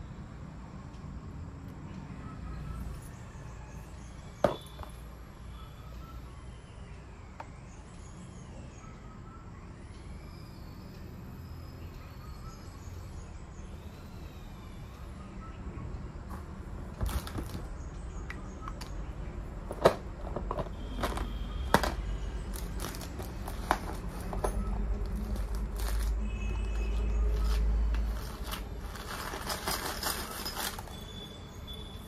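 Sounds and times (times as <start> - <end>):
clicks and knocks of handling: 19.7 - 24.8
dense crinkling: 20.4 - 31.1
fabric rustling: 27.3 - 31.0.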